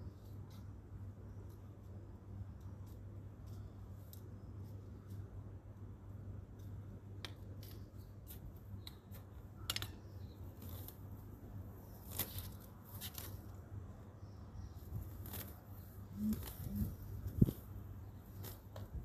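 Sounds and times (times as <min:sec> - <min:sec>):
low steady hum: 0:00.0 - 0:19.0
rustling of leaves and soil: 0:00.0 - 0:19.0.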